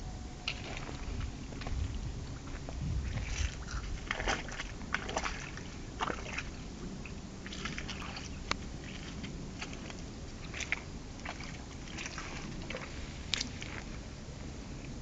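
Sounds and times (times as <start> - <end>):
steady low rumble: 0.0 - 15.0
boots squelching through mud: 2.4 - 6.6, 7.4 - 14.0.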